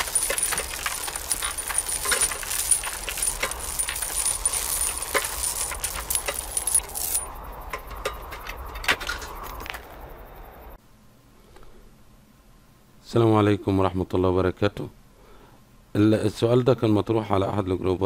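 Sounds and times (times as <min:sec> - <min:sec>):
metallic jangling and clinking: 0:00.0 - 0:07.4.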